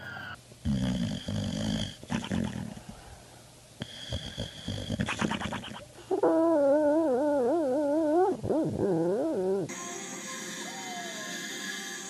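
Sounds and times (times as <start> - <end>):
dog snoring: 0.6 - 2.8, 3.8 - 9.7
wavering voice-like tone: 6.1 - 9.8.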